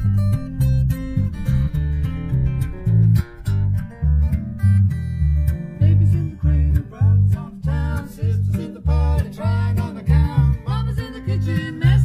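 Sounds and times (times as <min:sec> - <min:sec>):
electric bass guitar: 0:00.0 - 0:12.0
fingerpicked acoustic guitar: 0:00.0 - 0:12.0
man and woman singing: 0:05.8 - 0:12.0.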